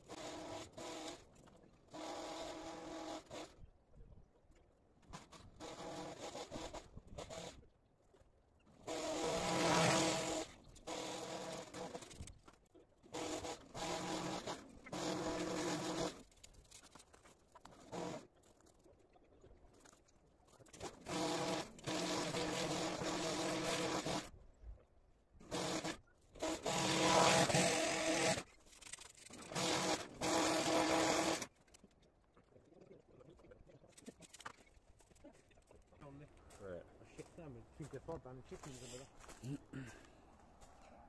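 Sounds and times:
hedge trimmer cutting: 0.0s - 1.2s, 1.9s - 3.5s, 5.2s - 7.6s, 8.8s - 12.3s, 13.1s - 16.2s, 17.7s - 18.3s, 20.7s - 24.3s, 25.4s - 28.5s, 29.3s - 31.5s.

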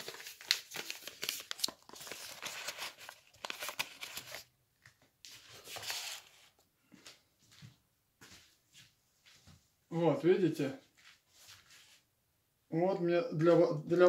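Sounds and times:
rustling and crinkling: 0.0s - 9.7s, 10.8s - 12.1s.

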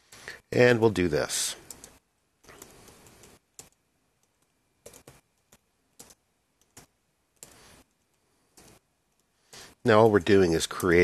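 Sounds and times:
faint keyboard keystrokes: 1.6s - 9.3s.

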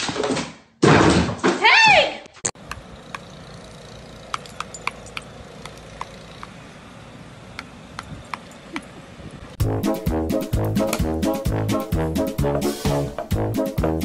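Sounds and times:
metallic clinks and ticks: 2.7s - 6.6s, 8.0s - 8.9s.

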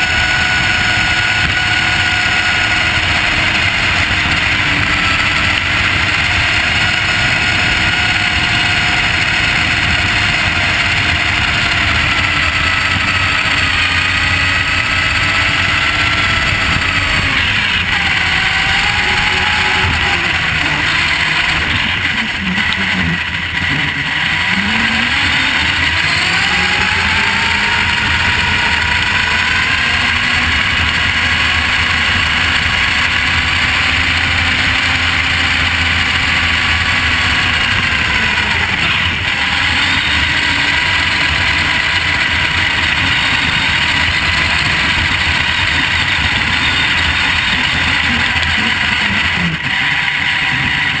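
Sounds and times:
electric motor whining: 0.0s - 51.0s.

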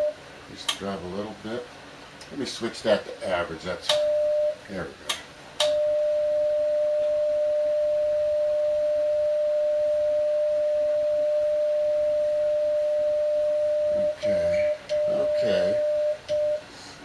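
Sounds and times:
steady morse sidetone: 0.0s - 0.2s, 3.9s - 4.7s, 5.6s - 16.7s
click: 5.1s - 5.8s.

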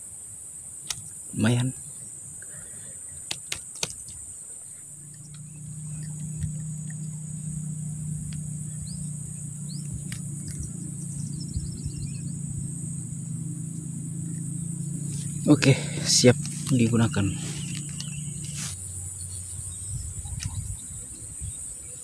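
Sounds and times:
crickets droning: 0.0s - 22.0s
low engine hum: 4.7s - 22.0s
bird chirps and trill: 4.8s - 22.0s.

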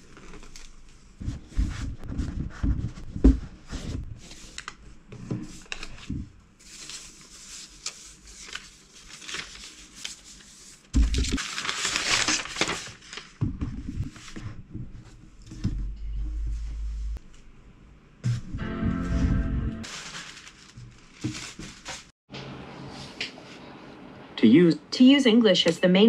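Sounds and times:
rustling of paper and cardboard: 0.0s - 17.2s, 19.8s - 22.2s.

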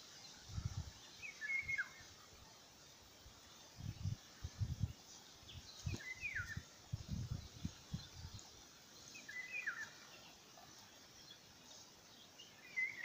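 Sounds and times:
songbird whistled calls: 1.2s - 2.0s, 5.8s - 6.6s, 9.2s - 10.0s, 12.6s - 13.0s.

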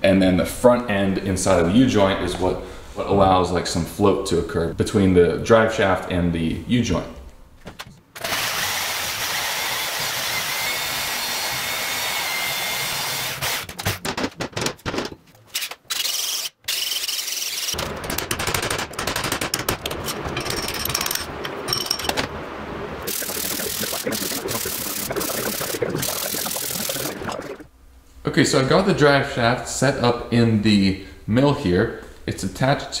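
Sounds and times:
electric drill boring into steel: 8.2s - 13.7s, 15.9s - 17.8s
power saw cutting steel: 8.2s - 13.7s.

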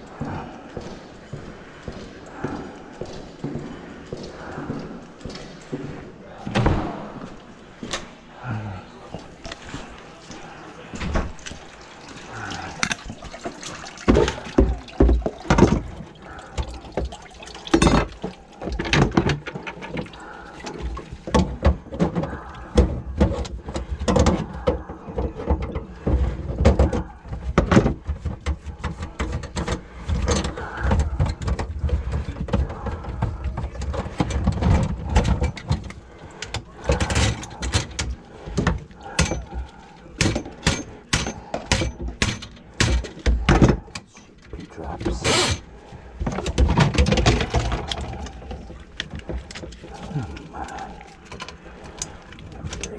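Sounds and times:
knocks and clatter on drain pipes: 10.8s - 52.9s
water running into a bucket: 11.3s - 21.4s.

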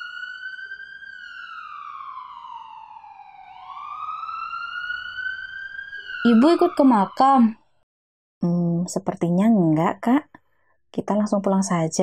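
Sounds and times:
ambulance siren wailing: 0.0s - 7.8s.

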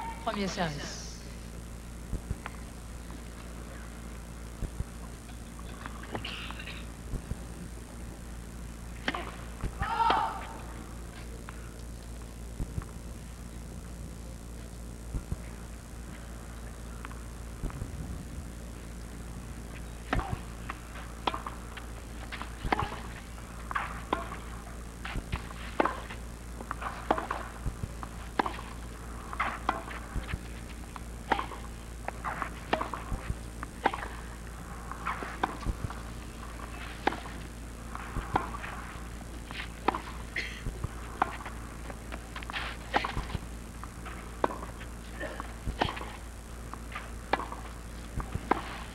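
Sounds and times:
tennis ball bouncing: 31.3s - 34.2s, 34.8s - 38.8s.

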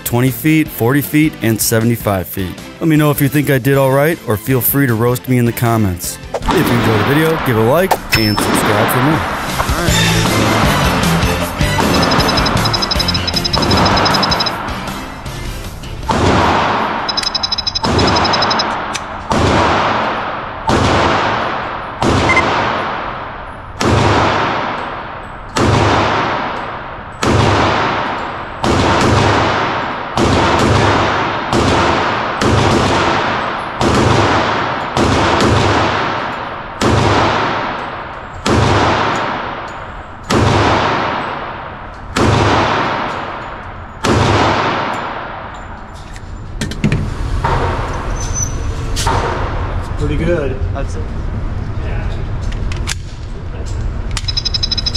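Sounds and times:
pistol shots echoing indoors: 15.9s - 46.0s.

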